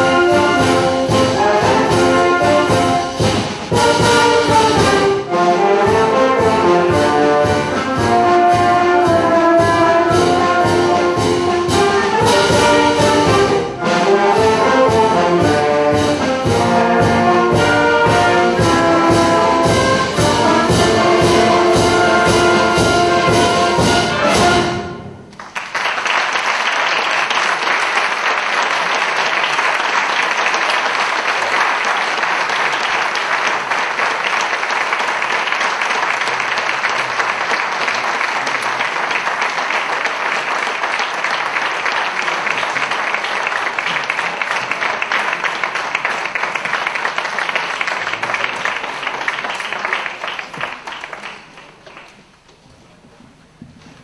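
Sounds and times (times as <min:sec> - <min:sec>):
audience applause: 0:25.3 - 0:52.4.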